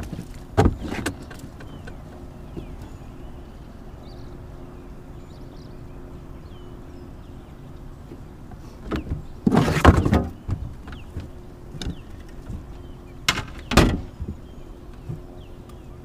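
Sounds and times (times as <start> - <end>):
bangs on aluminum boat: 8.9 - 10.8, 13.3 - 14.4.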